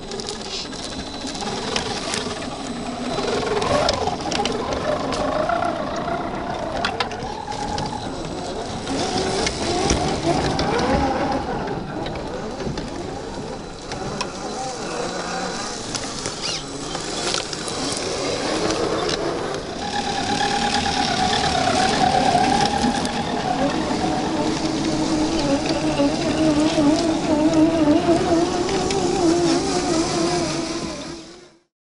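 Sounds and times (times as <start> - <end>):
electric motor whining: 0.0 - 31.6
small clicks and crunches: 15.7 - 19.6.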